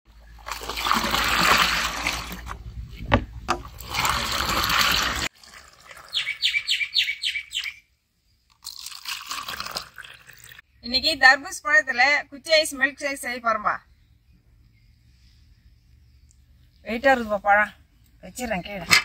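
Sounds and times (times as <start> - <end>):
juice pouring into metal pot: 0.3 - 2.6, 3.6 - 6.4, 8.5 - 10.6
bird chirping: 6.0 - 8.4, 13.6 - 17.0.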